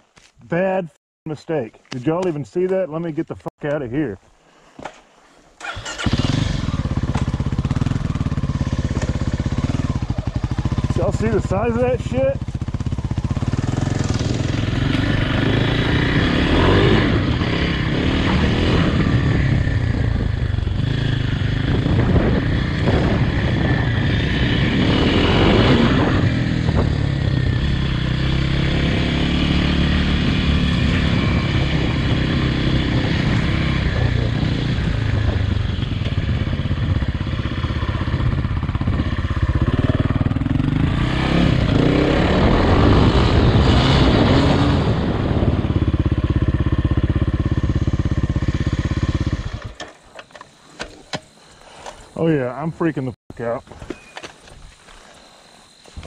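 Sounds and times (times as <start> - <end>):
dirt bike engine revving: 5.6 - 50.1.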